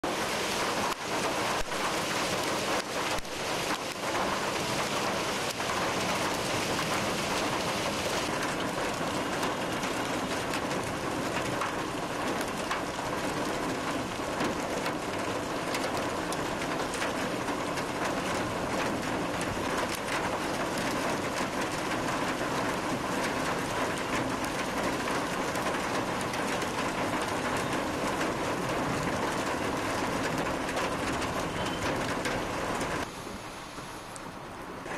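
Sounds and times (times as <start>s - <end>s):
heavy rain hiss: 0.1s - 12.3s, 31.6s - 34.9s.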